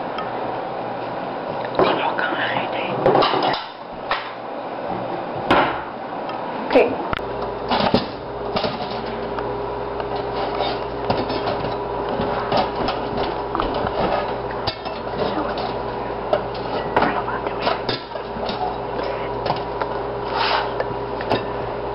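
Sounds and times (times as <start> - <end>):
steady low hum: 0.0 - 21.9
dinner plates clattering: 7.7 - 9.2, 10.1 - 19.7.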